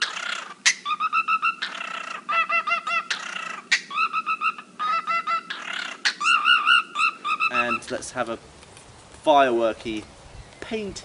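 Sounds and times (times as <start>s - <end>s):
cockatiel chirping: 0.0s - 7.9s.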